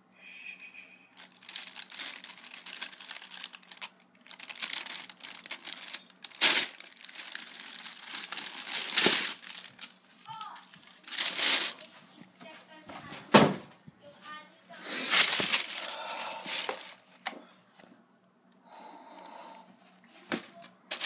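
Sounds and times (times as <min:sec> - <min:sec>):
tissue paper rustling: 0:01.2 - 0:12.1, 0:15.0 - 0:17.0, 0:20.2 - 0:21.0.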